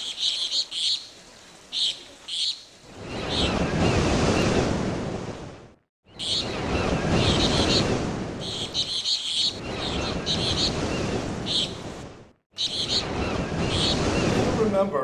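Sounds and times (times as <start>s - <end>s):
small birds chirping: 0.0s - 3.8s, 6.0s - 11.9s, 12.5s - 14.5s.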